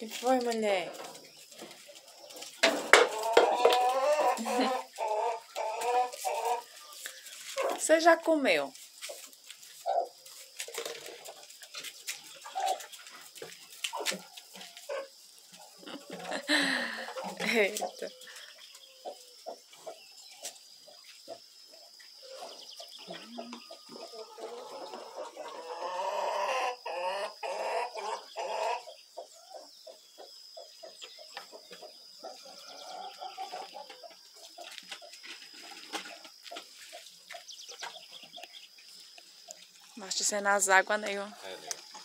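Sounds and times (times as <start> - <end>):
chickens clucking: 0.0 - 8.1, 8.8 - 42.0.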